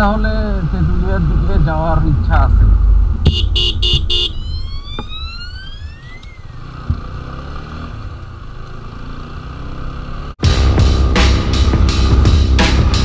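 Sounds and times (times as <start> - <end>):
wind noise on microphone: 0.3 - 5.3
motorcycle horn beeping: 3.3 - 4.4
motorcycle engine running: 6.4 - 13.0.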